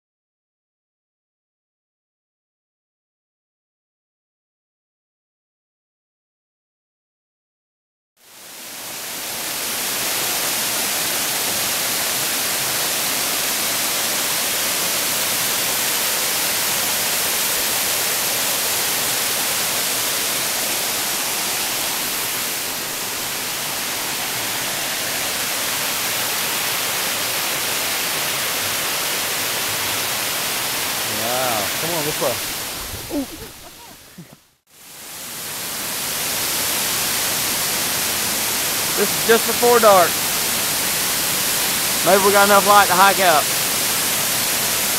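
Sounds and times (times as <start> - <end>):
waterfall rushing over rock: 8.2 - 33.8, 34.7 - 44.9.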